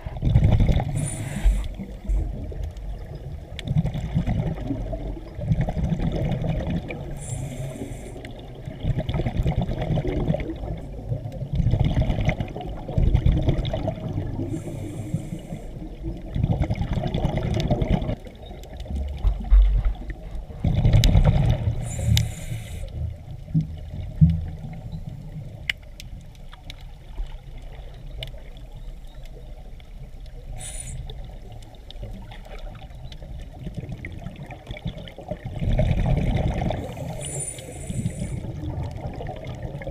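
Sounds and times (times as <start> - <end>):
exhaled bubbles gurgling: 0.0 - 39.9
regulator hiss on inhale: 0.9 - 2.2, 7.1 - 8.5, 14.4 - 16.0, 21.8 - 23.1, 30.5 - 31.3, 36.8 - 38.6.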